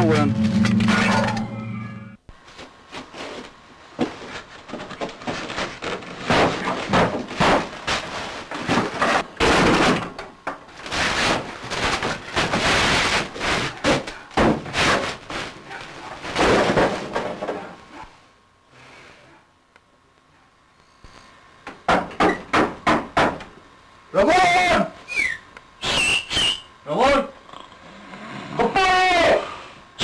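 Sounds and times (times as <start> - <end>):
rustling and scraping: 2.4 - 9.3, 10.7 - 17.7
knocks and bangs on wood: 4.0 - 8.0, 13.8 - 15.1, 16.3 - 17.6, 21.8 - 23.5.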